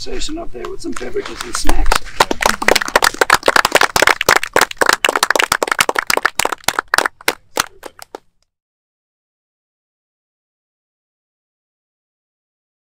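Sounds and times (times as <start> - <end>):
small audience applauding: 1.0 - 8.2.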